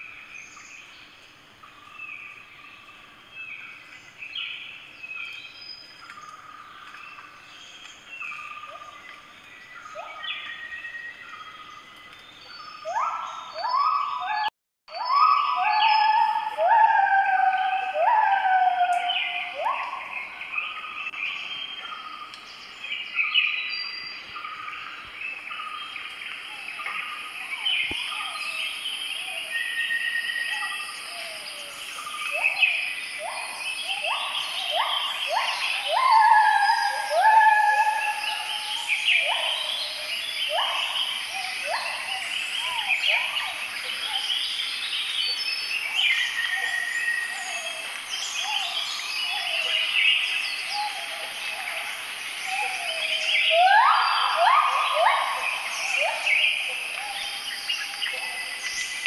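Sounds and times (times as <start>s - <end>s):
birds calling and chirping: 0.0s - 59.0s.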